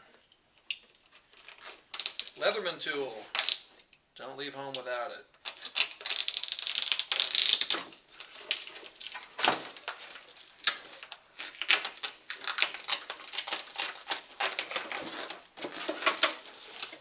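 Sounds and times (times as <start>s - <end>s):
cardboard scratching and rustling: 12.6s - 17.0s.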